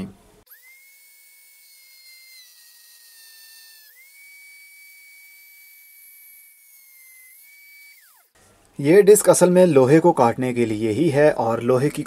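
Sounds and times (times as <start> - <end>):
rotary tool cutting disc whine: 0.0 - 8.6.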